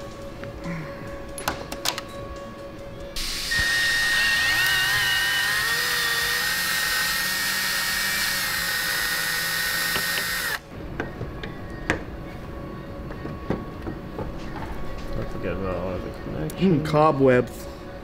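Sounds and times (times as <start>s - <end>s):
cordless drill motor whine: 3.2s - 10.6s.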